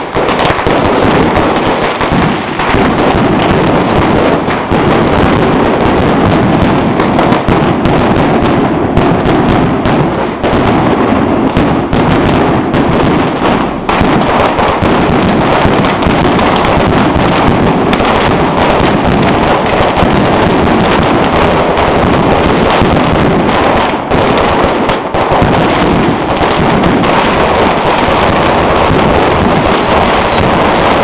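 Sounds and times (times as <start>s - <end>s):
fireworks cracking and banging: 0.0s - 31.0s.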